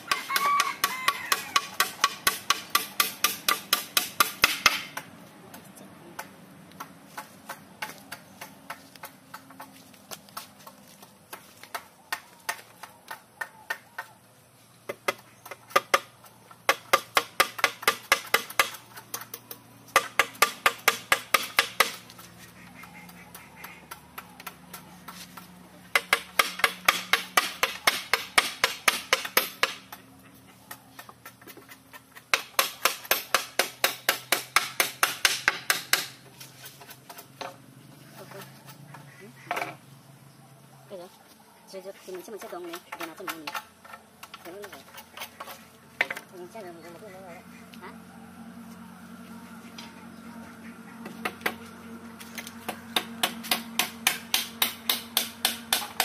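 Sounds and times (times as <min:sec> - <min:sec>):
hammer driving nails into wood: 0:01.6 - 0:05.0, 0:32.3 - 0:36.2.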